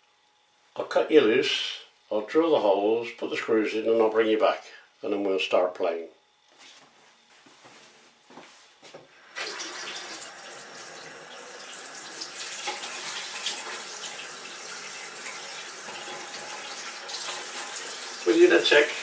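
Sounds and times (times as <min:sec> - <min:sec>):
tap water running: 0:09.2 - 0:19.0.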